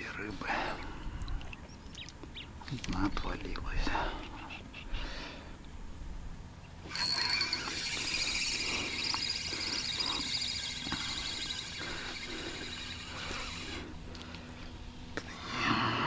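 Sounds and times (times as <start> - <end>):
fishing reel whirring: 6.8 - 14.5.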